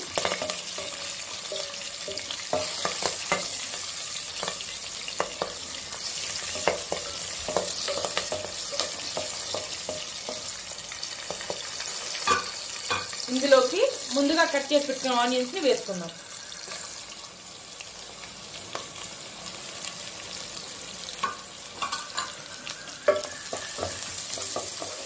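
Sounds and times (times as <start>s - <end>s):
spices sizzling in hot oil: 0.0s - 25.0s
spatula scraping pan: 0.1s - 10.6s, 16.2s - 17.1s, 21.2s - 25.0s.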